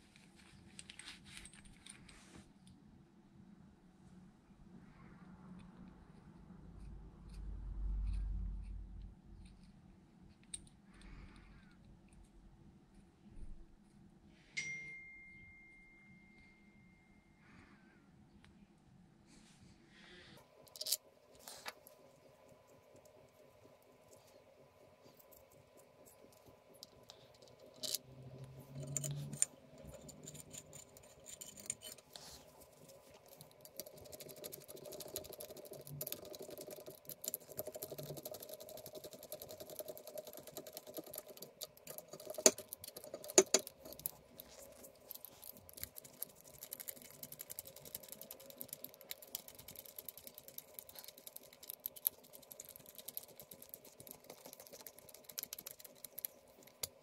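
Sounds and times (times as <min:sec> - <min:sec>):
faint steady hum: 0:00.0 - 0:57.0
hand tools clicking and tapping: 0:33.5 - 0:44.4.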